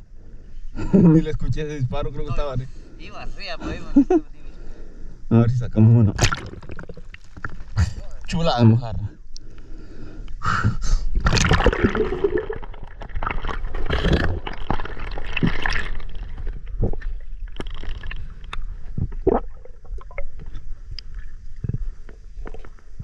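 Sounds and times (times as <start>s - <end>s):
water splashing and gurgling: 6.1s - 7.8s, 11.2s - 21.9s
sharp underwater clicks and knocks: 6.2s - 7.8s, 13.0s - 19.2s.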